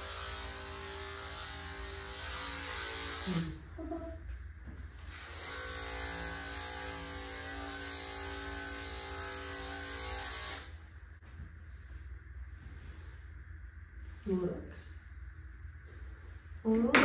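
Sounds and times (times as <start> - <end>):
electric clippers running: 0.0 - 3.7, 5.1 - 10.8.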